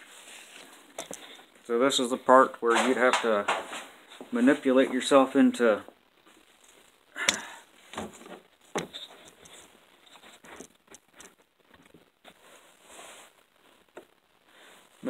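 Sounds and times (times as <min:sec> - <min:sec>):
clothing rustling against camera: 0:00.0 - 0:01.8, 0:07.7 - 0:14.0.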